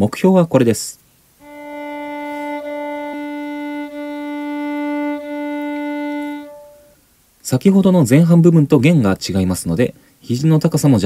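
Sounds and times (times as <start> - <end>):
violin bowed note: 1.4 - 7.0.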